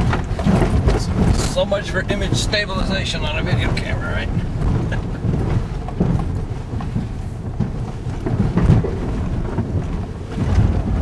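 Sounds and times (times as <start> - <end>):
low uneven car rumble: 0.0 - 11.0
suspension knocks and jolts: 0.0 - 11.0.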